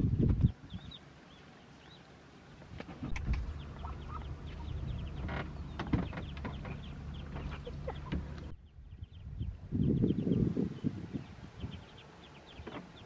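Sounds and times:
birds chirping: 0:00.0 - 0:13.0
sharp clicks: 0:02.8 - 0:03.5
low rumble: 0:03.0 - 0:12.3.

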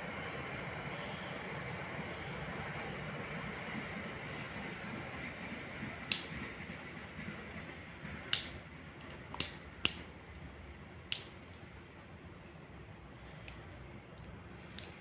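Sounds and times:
lock cylinder clicks: 0:06.1 - 0:06.4, 0:08.3 - 0:10.4, 0:11.1 - 0:11.6.

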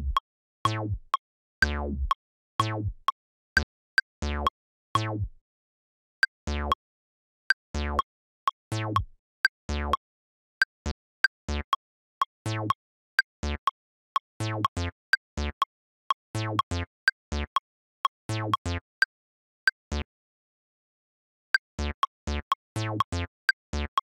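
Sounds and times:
short bass notes: 0:00.0 - 0:01.0, 0:01.6 - 0:02.1.

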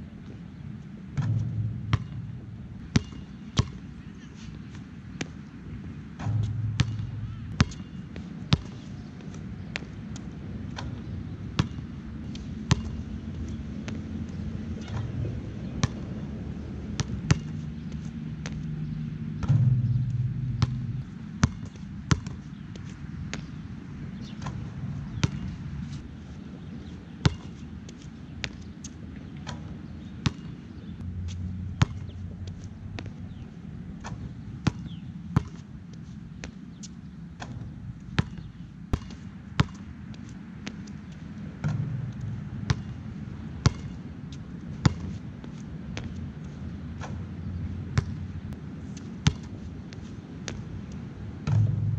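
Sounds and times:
low rumble: 0:01.2 - 0:03.0, 0:06.2 - 0:07.6, 0:18.7 - 0:21.7, 0:31.0 - 0:34.6, 0:41.7 - 0:42.7, 0:51.5 - 0:51.9
basketball bouncing on court: 0:01.2 - 0:03.9, 0:06.1 - 0:09.9, 0:11.6 - 0:16.2, 0:17.0 - 0:22.6, 0:25.2 - 0:25.5, 0:27.2 - 0:27.5, 0:29.5 - 0:33.4, 0:34.1 - 0:35.6, 0:37.4 - 0:39.9, 0:41.6 - 0:44.0, 0:44.8 - 0:45.2, 0:48.0 - 0:48.3, 0:49.2 - 0:49.5, 0:51.4 - 0:51.9.

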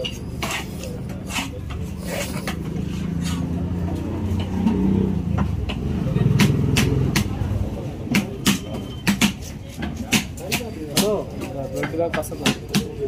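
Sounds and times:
engine rumble: 0:00.0 - 0:08.9.

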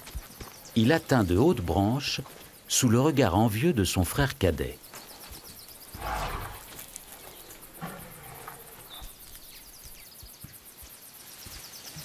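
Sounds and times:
branches rustling and cracking: 0:04.9 - 0:10.0
elephant grunting: 0:05.9 - 0:09.3.

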